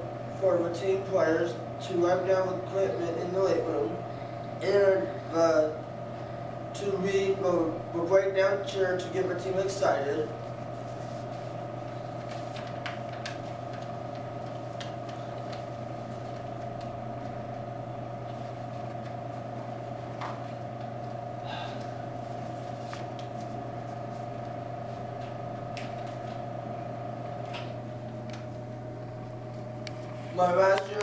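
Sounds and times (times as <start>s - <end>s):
room hum: 0.0s - 31.0s
paper rustling: 10.7s - 17.4s, 22.2s - 26.5s.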